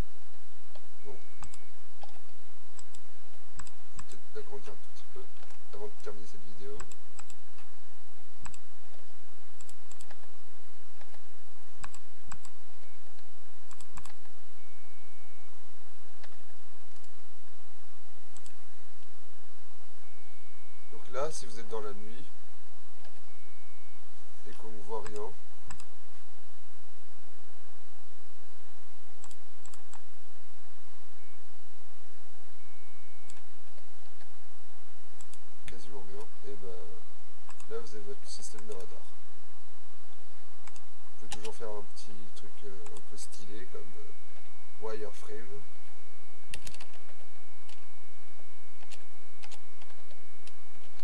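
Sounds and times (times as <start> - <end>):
steady low hum: 0.0 - 51.0
computer keys clicking: 0.7 - 3.0, 3.6 - 4.3, 6.7 - 7.7, 8.4 - 9.0, 9.6 - 10.3, 11.8 - 12.6, 13.2 - 14.3, 16.2 - 17.1, 18.3 - 18.6, 24.9 - 25.9, 29.2 - 30.1, 33.2 - 34.3, 37.5 - 37.8, 38.5 - 38.9, 40.6 - 41.6, 46.5 - 47.8, 48.8 - 51.0
mouse and keyboard clicks: 46.5 - 47.0.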